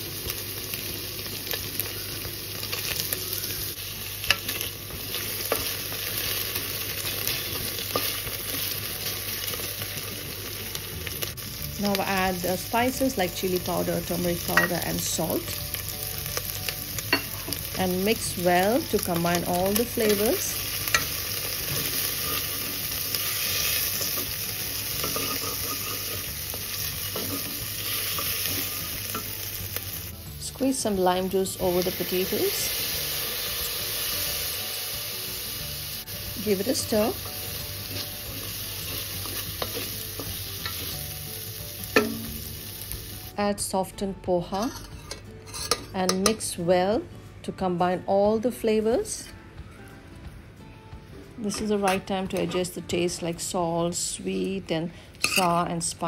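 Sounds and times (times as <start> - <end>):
food sizzling in oil: 0.0 - 43.6
spatula stirring and scraping: 25.0 - 29.0, 37.8 - 41.1.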